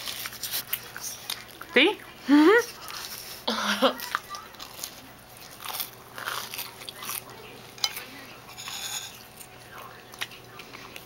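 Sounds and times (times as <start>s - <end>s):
chewing and crunching fried dough: 0.0s - 11.0s.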